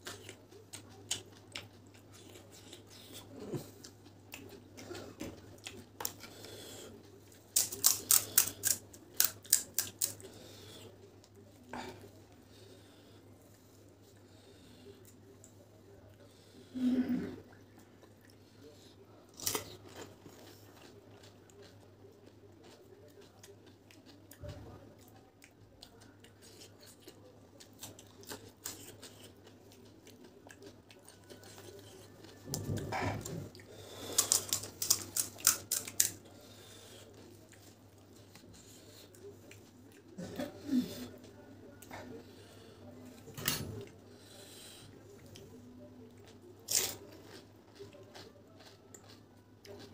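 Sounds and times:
wet chewing: 0:00.0 - 0:10.6, 0:19.3 - 0:40.2, 0:46.2 - 0:49.9.

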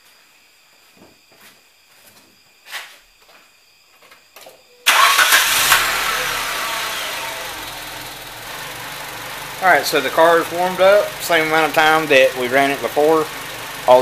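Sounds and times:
car engine starting: 0:04.8 - 0:14.0.

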